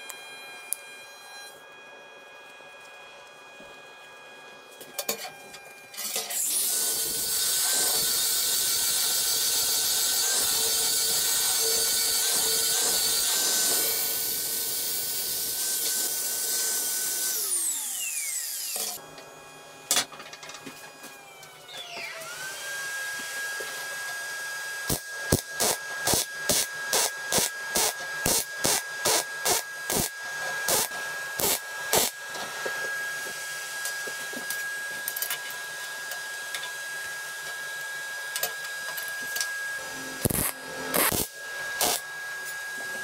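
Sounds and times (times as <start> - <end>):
angle grinder grinding steel: 6.0 - 19.0, 24.9 - 32.9, 38.6 - 43.0.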